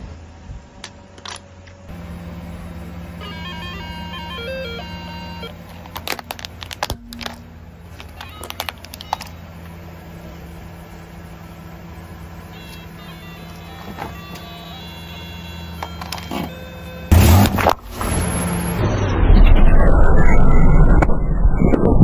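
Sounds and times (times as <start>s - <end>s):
car engine idling: 1.8s - 18.8s
toy electronic notes: 3.1s - 6.2s, 7.0s - 17.4s
plastic toy cracking under tyre: 5.8s - 7.4s.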